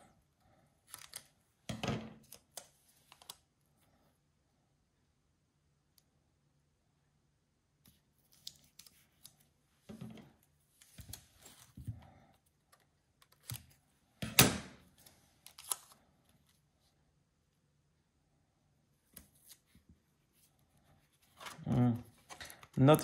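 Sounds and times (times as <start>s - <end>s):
tape clicks and rustles: 15.0s - 16.5s.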